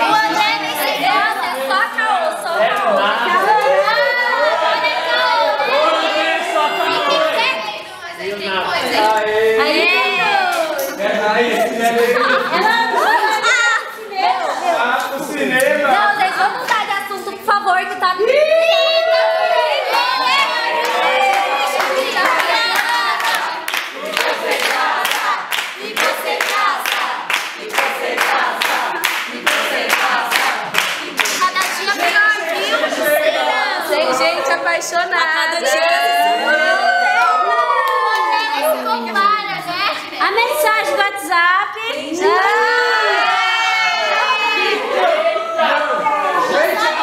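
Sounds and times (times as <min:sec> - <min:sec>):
girls cheering and shouting: 0:03.3 - 0:07.9, 0:09.7 - 0:10.8, 0:12.5 - 0:14.6, 0:18.1 - 0:23.2, 0:35.4 - 0:41.1, 0:41.8 - 0:47.0
girls singing together: 0:19.7 - 0:35.8
rhythmic hand clapping: 0:19.9 - 0:32.9.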